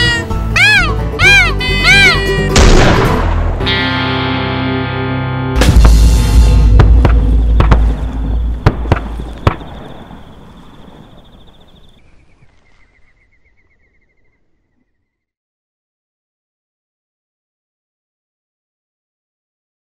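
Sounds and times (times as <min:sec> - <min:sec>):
sharp cracks: 0:02.6 - 0:03.7, 0:05.6 - 0:11.0
loud deep rumble: 0:05.6 - 0:11.0.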